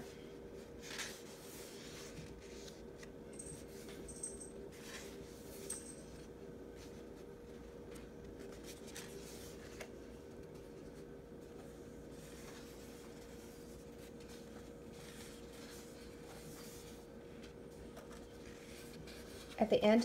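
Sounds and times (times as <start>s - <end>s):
paper pages turning: 0.8s - 3.1s, 7.9s - 11.0s, 12.2s - 19.6s.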